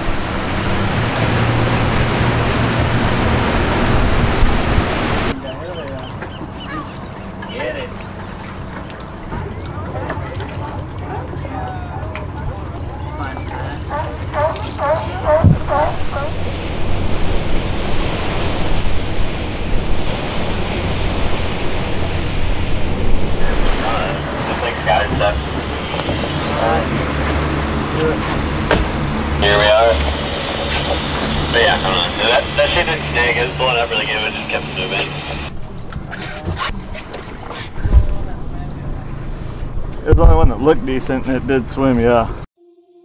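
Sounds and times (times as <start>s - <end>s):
rush of wind and water: 0.0s - 42.4s
low boat engine drone: 0.0s - 43.0s.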